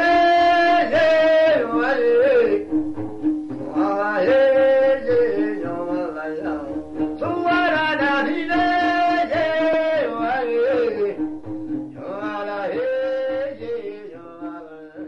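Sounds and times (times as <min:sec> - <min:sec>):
person singing sliding notes: 0:00.0 - 0:02.8, 0:03.6 - 0:11.3.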